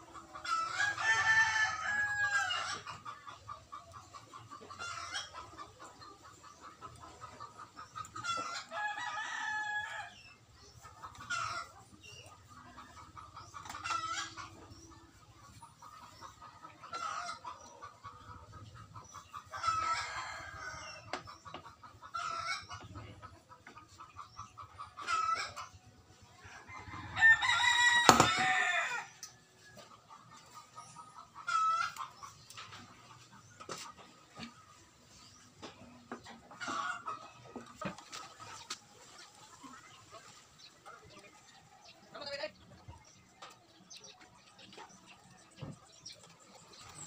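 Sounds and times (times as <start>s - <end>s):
chickens clucking: 0.0s - 47.0s
rooster crowing: 26.9s - 29.1s.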